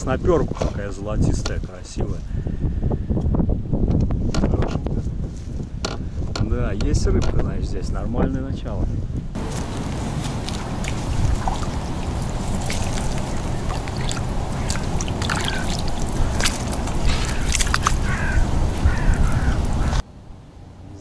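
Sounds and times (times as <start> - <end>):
steady low rumble: 9.1 - 20.0
muddy water sloshing and splashing: 9.4 - 20.0
wet clicks: 9.6 - 18.9.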